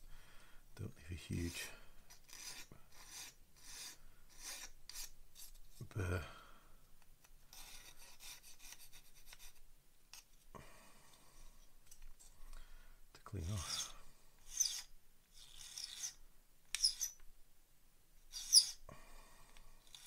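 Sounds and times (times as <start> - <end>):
metal file rasping on plastic: 2.1 - 5.5, 7.5 - 9.6, 13.5 - 17.2, 18.3 - 18.8.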